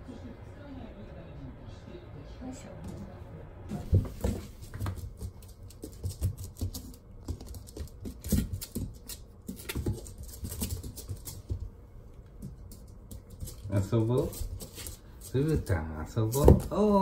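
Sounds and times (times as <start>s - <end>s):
puppy paws scrabbling on floor mat: 3.7s - 17.0s.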